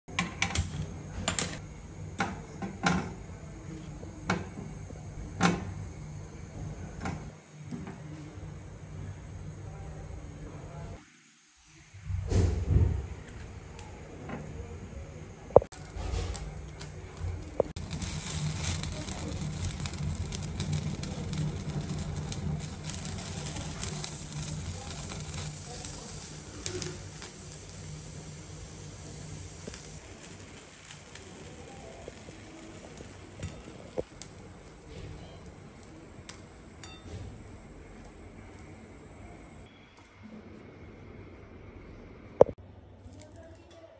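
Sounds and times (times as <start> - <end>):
gas burner flame rumbling: 0.1 - 11.0, 11.6 - 39.7
vegetable skins crackling and sizzling: 15.4 - 39.7.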